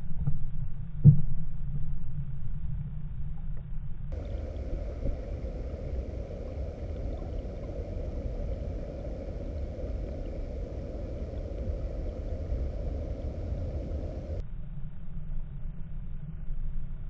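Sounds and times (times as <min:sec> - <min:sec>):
underwater river rushing: 0:04.1 - 0:14.4.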